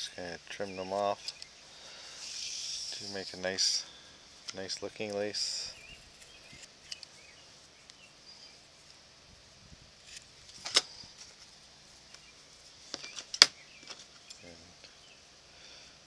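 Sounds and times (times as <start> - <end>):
faint bird chirps: 5.5 - 8.7, 12.0 - 15.3.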